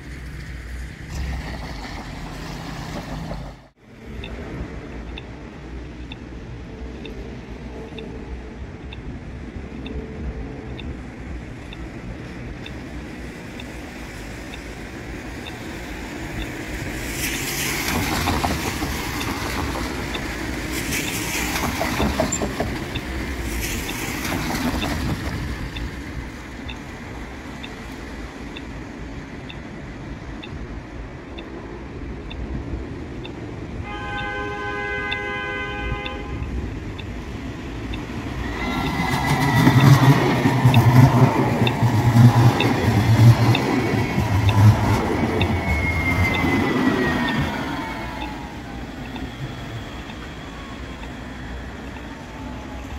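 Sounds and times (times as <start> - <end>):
traffic swishing on wet road: 0.0 - 52.9
tram wheels rumbling and squealing: 0.0 - 52.9
tram horn: 33.8 - 36.8.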